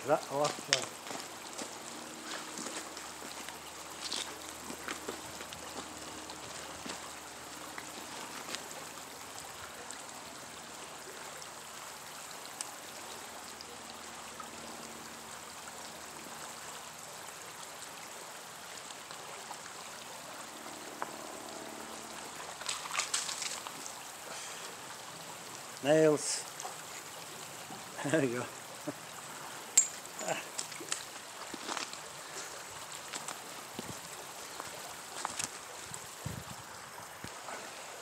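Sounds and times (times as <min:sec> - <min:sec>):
creek water trickling: 0:00.0 - 0:38.0
sharp water splashing: 0:22.2 - 0:24.0.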